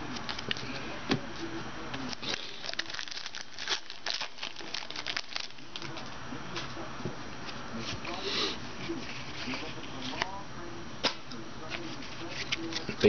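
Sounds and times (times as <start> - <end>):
card pack crinkling: 2.0 - 6.1.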